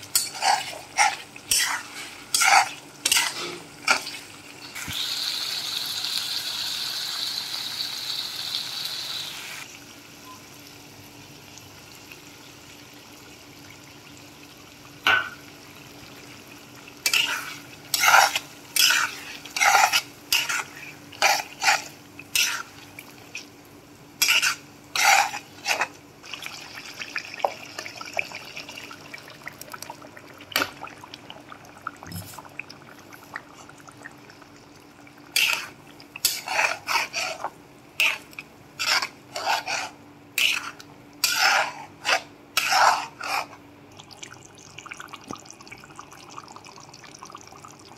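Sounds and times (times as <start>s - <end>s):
curry sizzling in frying pan: 0.0s - 31.5s, 33.9s - 43.6s
metal spoon scraping pan: 0.1s - 4.2s, 17.0s - 22.8s, 24.2s - 25.9s, 35.4s - 43.6s.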